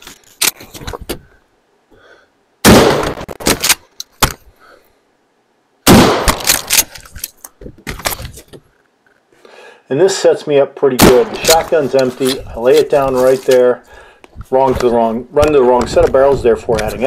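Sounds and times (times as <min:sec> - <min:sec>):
shotgun shots: 0:02.6 - 0:03.6, 0:05.8 - 0:06.8, 0:11.0 - 0:11.8.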